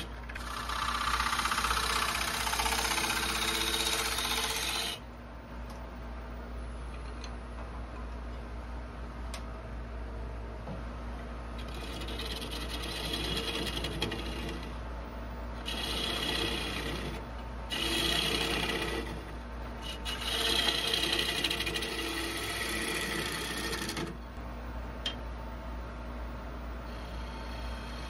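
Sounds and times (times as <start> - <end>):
gouge scraping wood on lathe: 0.0 - 5.0, 11.6 - 14.8, 15.6 - 24.2
lathe humming: 0.0 - 5.0, 11.6 - 14.8, 15.6 - 24.4.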